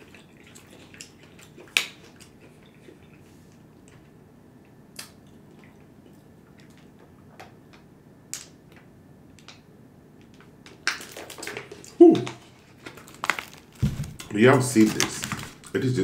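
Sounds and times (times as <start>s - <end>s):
plastic bottle crackling: 12.7s - 16.0s.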